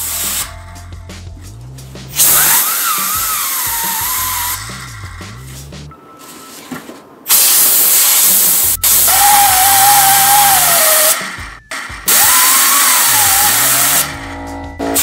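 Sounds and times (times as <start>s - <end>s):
air blow gun hissing: 0.0s - 0.5s, 2.1s - 4.9s, 7.3s - 11.5s, 12.1s - 14.1s
wavering whine of spinning gears: 2.2s - 5.4s, 12.2s - 15.0s.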